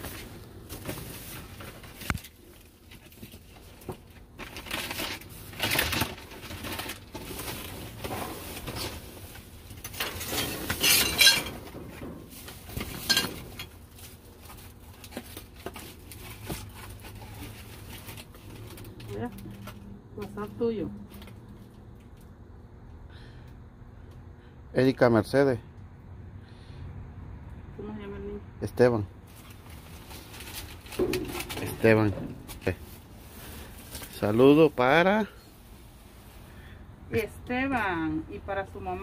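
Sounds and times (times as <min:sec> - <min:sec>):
rustling of items: 0:00.0 - 0:22.4, 0:28.8 - 0:38.0
objects clinking together: 0:10.0 - 0:11.6.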